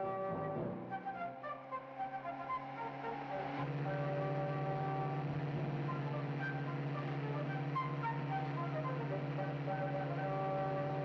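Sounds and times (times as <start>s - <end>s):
orchestral film music: 0.0s - 11.0s
sports car engine running: 3.6s - 11.0s.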